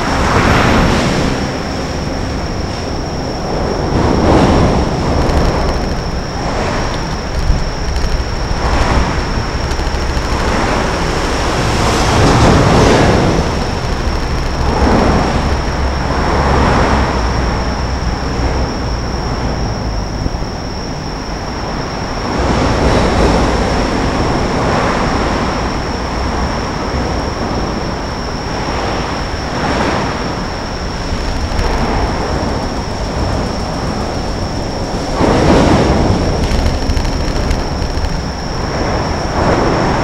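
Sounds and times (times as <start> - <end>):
traffic rumble: 0.0 - 40.0.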